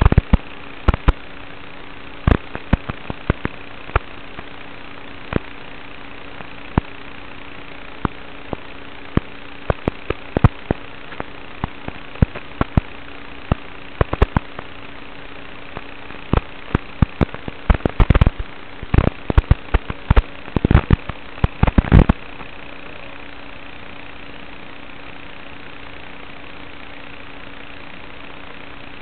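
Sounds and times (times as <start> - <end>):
static clicks and pops: 0.0 - 1.3, 2.2 - 7.1, 7.9 - 22.6
electrical static hiss: 0.0 - 29.0
faint electrical hum: 0.0 - 29.0.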